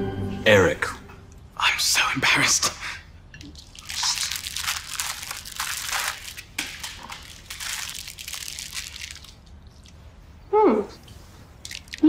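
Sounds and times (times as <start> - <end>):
pastry crunching: 3.5 - 10.0.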